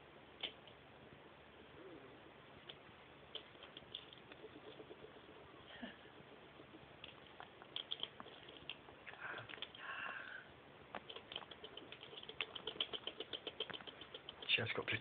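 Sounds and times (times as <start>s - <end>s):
hedgehog snuffle: 1.7s - 10.0s, 11.0s - 15.0s
hedgehog chewing clicks: 2.6s - 5.4s, 6.3s - 9.8s, 10.9s - 15.0s.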